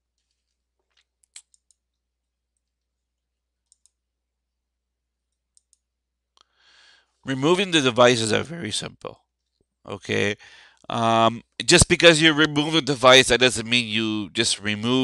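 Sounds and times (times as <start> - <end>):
faint computer mouse clicks: 3.6 - 4.0
breath: 6.4 - 7.2, 10.4 - 10.9.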